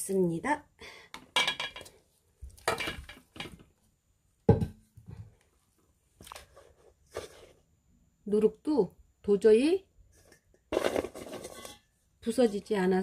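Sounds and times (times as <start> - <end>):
spoon scraping and knocking metal pot: 10.1 - 12.7.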